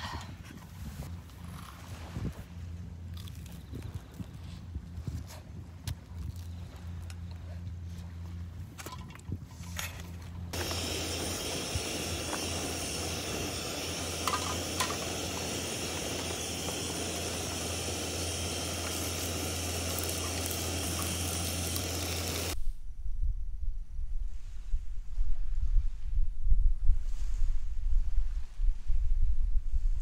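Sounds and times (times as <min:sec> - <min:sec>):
low hum: 0:00.1 - 0:30.0
steady hiss: 0:10.6 - 0:22.6.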